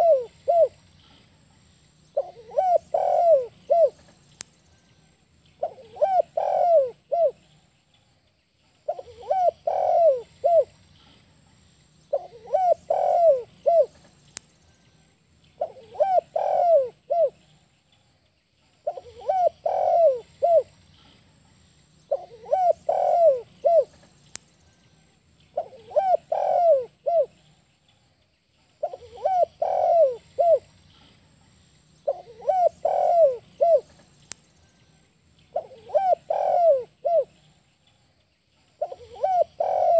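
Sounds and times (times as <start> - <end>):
dove cooing: 0.0 - 0.8, 2.2 - 4.2, 5.6 - 7.5, 8.9 - 10.8, 12.1 - 14.0, 15.6 - 17.4, 18.8 - 20.8, 22.1 - 24.0, 25.6 - 27.5, 28.8 - 31.0, 32.0 - 34.1, 35.5 - 37.5, 38.8 - 39.9
faint bird chirps: 0.0 - 39.9.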